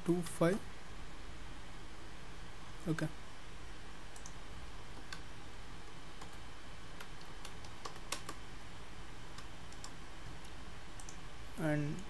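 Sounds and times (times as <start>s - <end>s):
faint steady hum: 0.0s - 12.0s
keyboard keys clicking: 7.0s - 8.4s.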